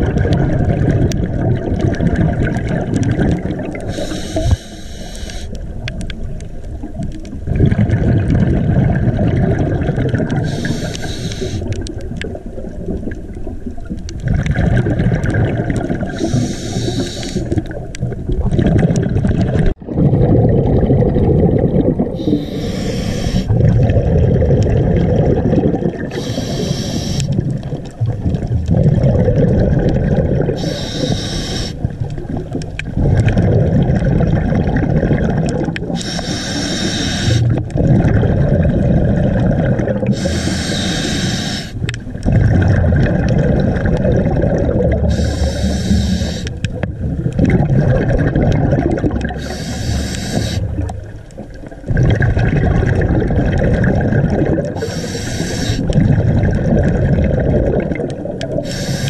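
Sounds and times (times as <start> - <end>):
bubbling exhale underwater: 0.0 - 59.0
hissing regulator inhale: 3.9 - 5.6, 10.4 - 11.7, 16.2 - 17.6, 22.2 - 23.5, 26.1 - 27.4, 30.6 - 31.8, 36.0 - 37.5, 40.1 - 41.9, 45.1 - 46.6, 49.4 - 50.8, 54.8 - 56.0, 58.6 - 59.0.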